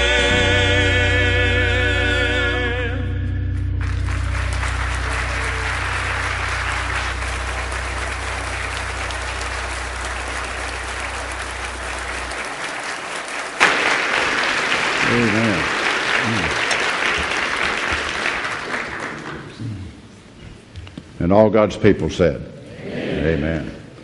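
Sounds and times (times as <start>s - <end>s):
held low musical note: 0.1s - 13.2s
congregation applauding: 3.8s - 20.0s.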